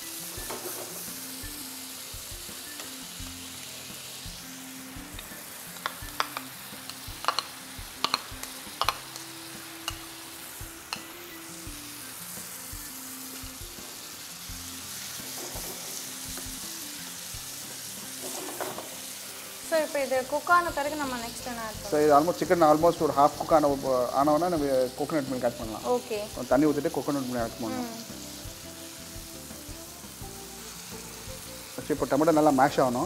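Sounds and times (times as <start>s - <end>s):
food sizzling in a frying pan: 0.0s - 33.0s
utensil knocking against pan: 8.0s - 9.0s, 18.2s - 18.9s.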